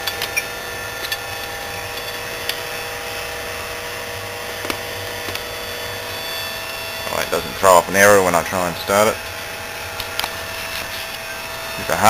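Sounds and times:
copier mechanical hum and whine: 0:00.0 - 0:12.0.

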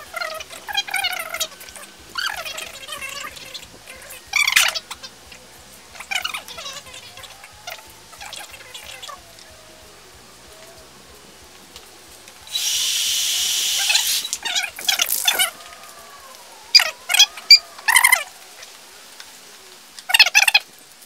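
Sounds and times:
rapid chirping bursts: 0:12.4 - 0:15.7
spray paint can hissing: 0:12.5 - 0:15.6.

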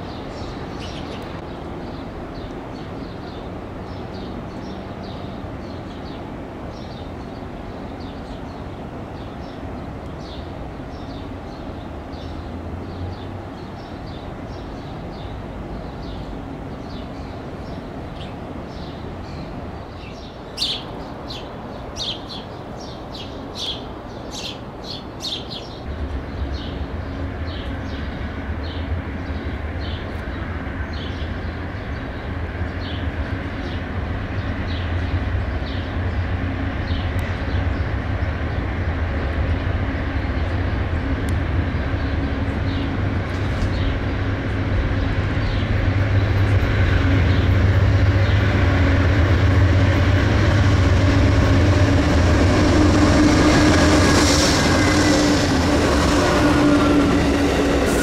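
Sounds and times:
diesel locomotive drone: 0:00.0 - 0:58.0
distant train rumble: 0:00.0 - 0:58.0
bird chirping: 0:16.0 - 0:26.8.

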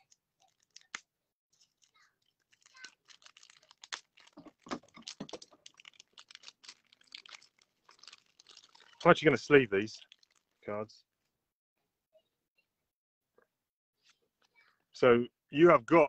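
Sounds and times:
plastic packaging crinkling: 0:00.0 - 0:01.0, 0:01.6 - 0:10.7.

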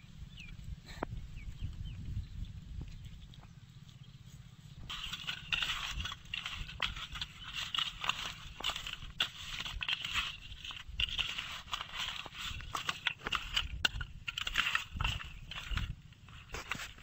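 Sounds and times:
wet fish scraping on steel plate: 0:04.9 - 0:17.0.

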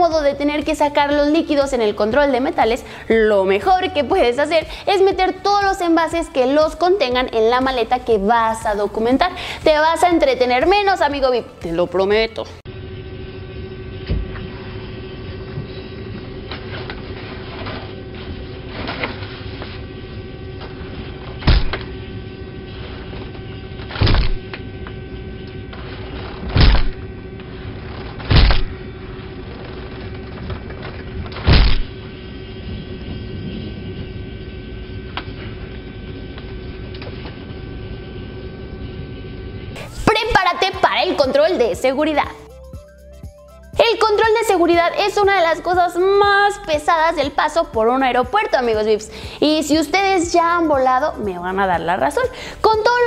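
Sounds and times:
steady hum: 0:00.0 - 0:53.0.

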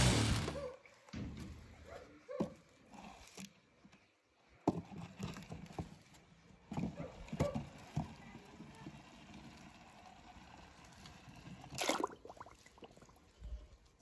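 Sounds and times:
toy truck wheels clicking and scraping: 0:00.0 - 0:00.7, 0:04.7 - 0:11.8.

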